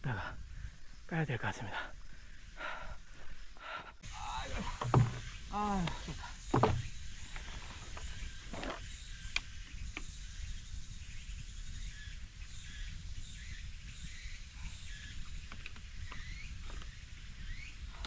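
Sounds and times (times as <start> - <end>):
faint bird chirps: 0.0 - 18.0
faint insect chirps: 0.0 - 18.0
wind rumbling on microphone: 4.0 - 18.0.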